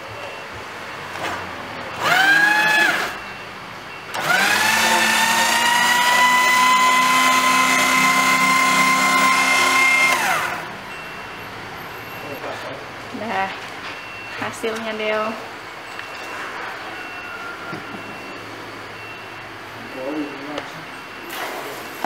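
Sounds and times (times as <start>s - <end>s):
paper shredder motor whining: 2.0s - 3.2s, 4.1s - 10.7s.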